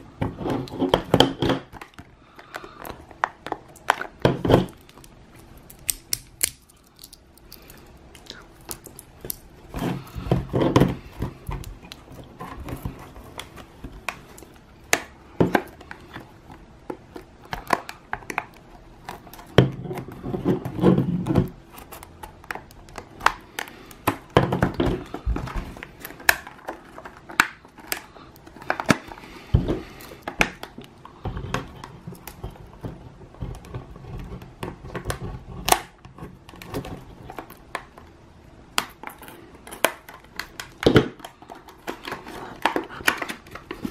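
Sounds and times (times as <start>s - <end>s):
plastic packaging crinkling: 1.7s - 33.2s.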